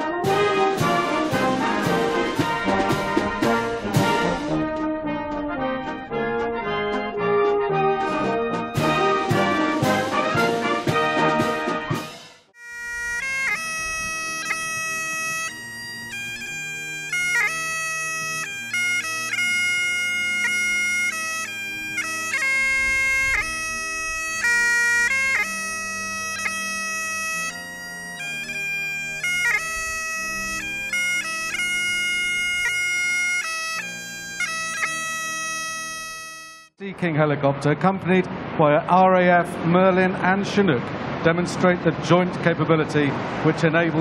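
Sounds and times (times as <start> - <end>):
bagpipe playing slow tune: 12.5 - 36.8.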